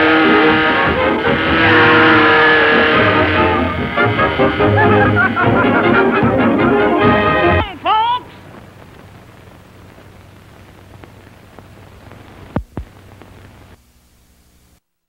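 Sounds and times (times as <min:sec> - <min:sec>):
film soundtrack hiss and crackle: 0:00.0 - 0:15.0
sharp pops: 0:08.4 - 0:13.7.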